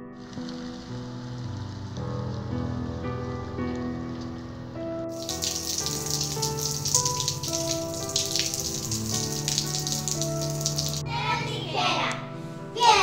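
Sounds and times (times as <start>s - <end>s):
music with slow held notes: 0.0s - 13.0s
rain falling: 0.1s - 4.5s, 5.1s - 11.0s.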